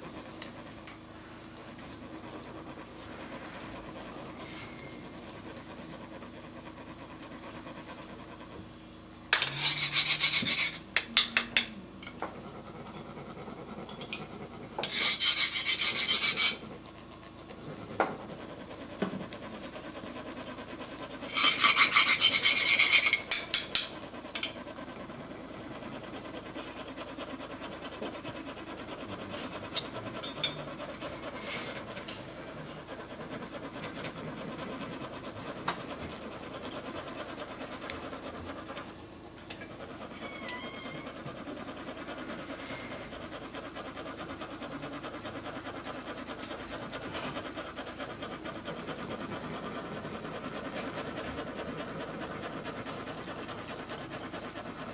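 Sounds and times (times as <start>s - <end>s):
faint scratches: 1.2s - 8.7s, 9.3s - 11.0s, 12.1s - 54.9s
metal scraper rasping on ridged funnel: 9.3s - 12.2s, 13.8s - 16.8s, 21.1s - 24.6s, 29.2s - 34.8s.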